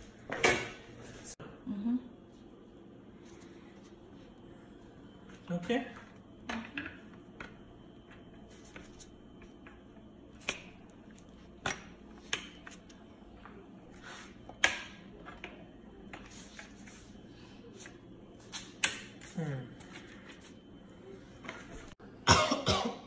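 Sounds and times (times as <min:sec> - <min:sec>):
faint room hum: 0:00.0 - 0:23.0.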